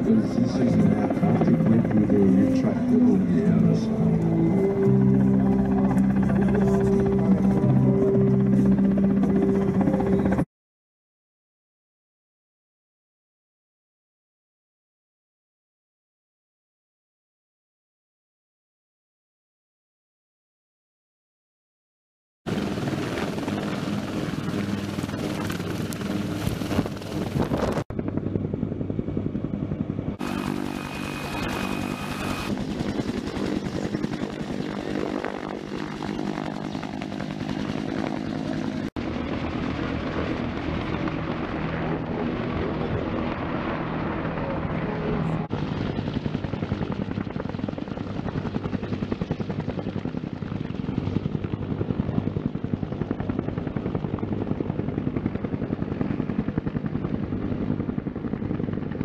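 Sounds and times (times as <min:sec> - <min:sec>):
helicopter rotor chopping: 0:00.0 - 0:10.4, 0:22.5 - 0:59.0
helicopter engine noise: 0:00.0 - 0:10.5, 0:22.5 - 0:59.0.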